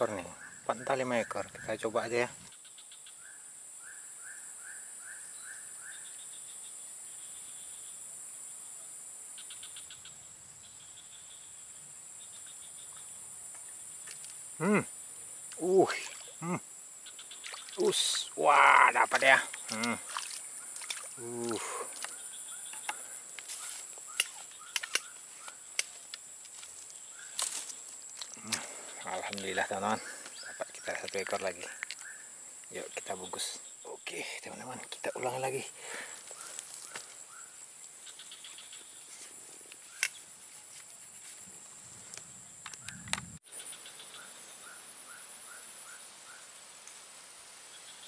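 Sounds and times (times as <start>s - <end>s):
insects droning: 0.0s - 48.0s
fishing rod clicks and rustles: 21.9s - 26.8s, 39.7s - 41.0s
sharp clicks: 24.2s - 25.2s.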